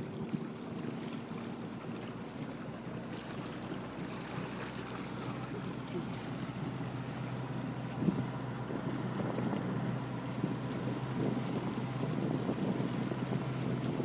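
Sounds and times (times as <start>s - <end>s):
motorboat engine humming: 0.0s - 14.0s
wake water rushing: 0.0s - 14.0s
wind on microphone: 6.0s - 14.0s.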